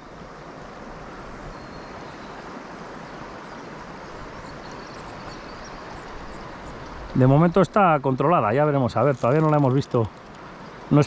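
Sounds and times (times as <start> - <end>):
river water flowing: 0.0 - 11.0.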